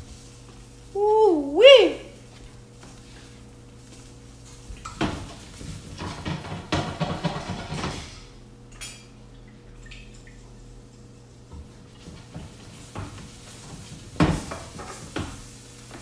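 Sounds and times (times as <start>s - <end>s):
pans and utensils clattering: 4.8s - 9.2s, 12.0s - 15.5s.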